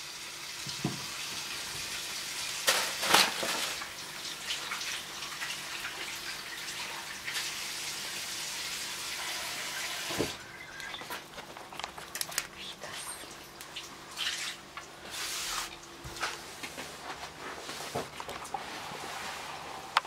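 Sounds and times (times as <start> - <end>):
clattering noises: 2.7 - 3.8, 10.1 - 12.6.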